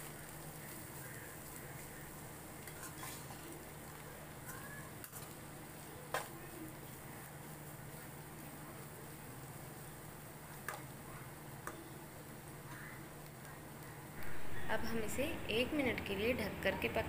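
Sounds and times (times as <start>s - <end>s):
faint sizzle: 0.0s - 17.0s
metal spoon scraping pan: 2.6s - 3.4s
low hum: 14.1s - 16.1s.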